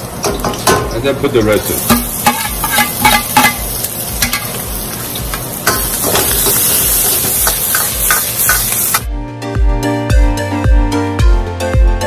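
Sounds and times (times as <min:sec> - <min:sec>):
peppers and onion sizzling in oil: 0:00.0 - 0:09.1
metal ladle scraping wok: 0:01.8 - 0:09.0.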